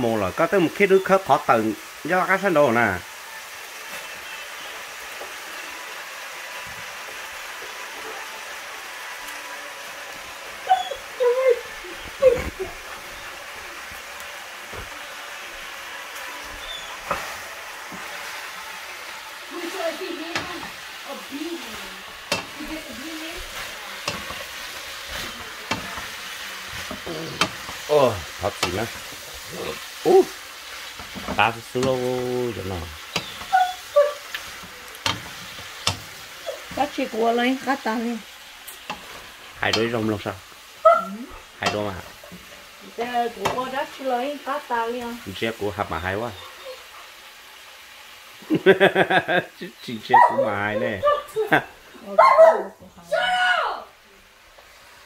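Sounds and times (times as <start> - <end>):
greens sizzling in a wok: 0.0 - 55.0
wooden spoon scraping a pan: 16.2 - 37.8, 38.6 - 40.2.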